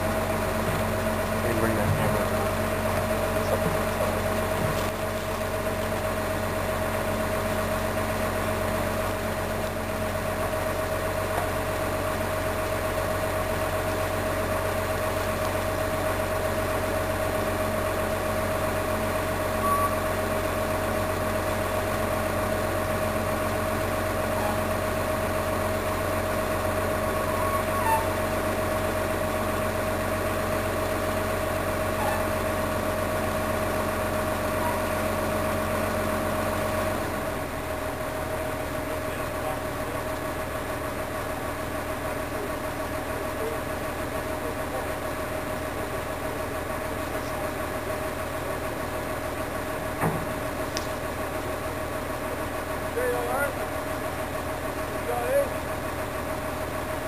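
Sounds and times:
diesel engine running steadily: 0.0 - 57.0
faint clicks: 50.7 - 51.0.

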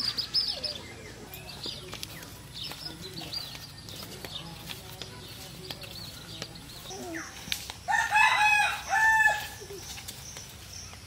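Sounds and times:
rooster crowing: 7.9 - 9.6.

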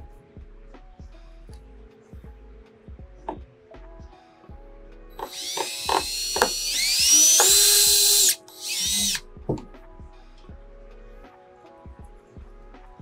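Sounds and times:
background music: 0.0 - 13.0
cordless drill whine: 5.2 - 9.2.

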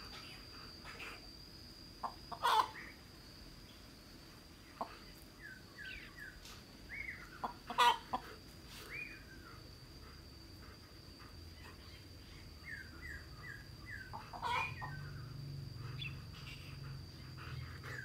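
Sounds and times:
steady high-pitched whine: 0.0 - 18.0
chicken squawk: 2.0 - 2.8, 7.4 - 8.2, 14.1 - 15.0
chickens clucking: 2.0 - 2.8, 7.4 - 8.3, 14.1 - 15.0.

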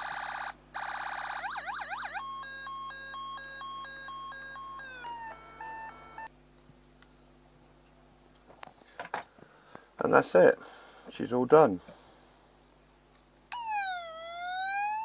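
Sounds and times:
electronic siren sounds: 0.0 - 6.3, 13.5 - 15.0.

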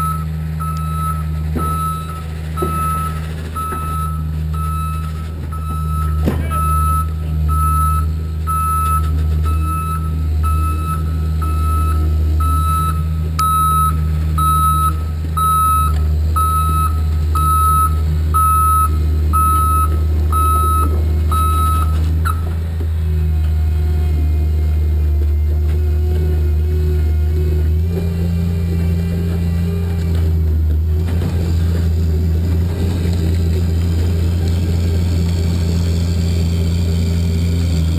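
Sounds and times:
reversing alarm beeping: 0.0 - 22.6
diesel engine running: 0.0 - 37.9.

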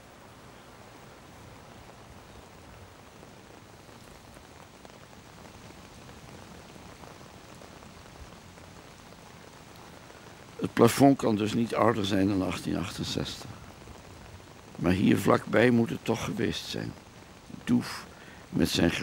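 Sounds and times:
faint steady rushing noise: 0.0 - 19.0.

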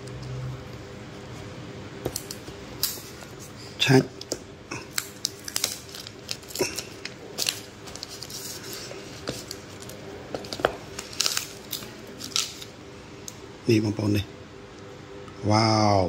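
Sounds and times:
plastic packaging crinkling: 4.8 - 12.8.

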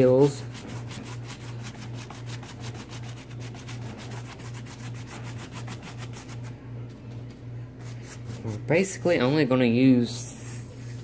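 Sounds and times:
paintbrush scratching textured surface: 0.0 - 6.6, 7.8 - 8.7
steady low hum: 0.0 - 11.0.

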